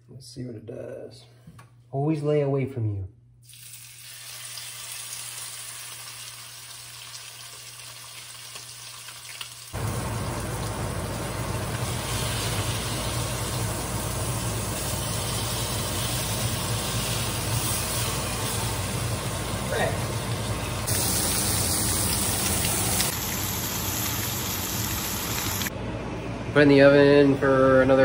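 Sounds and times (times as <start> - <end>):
fish fillet sizzling in skillet: 3.5 - 25.7.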